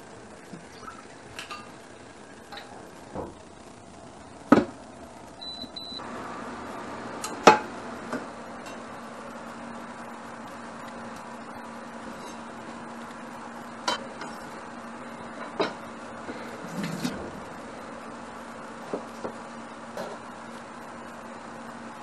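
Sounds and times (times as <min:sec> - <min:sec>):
cooling fan humming: 0:00.0 - 0:22.0
hob beeping: 0:05.4 - 0:06.0.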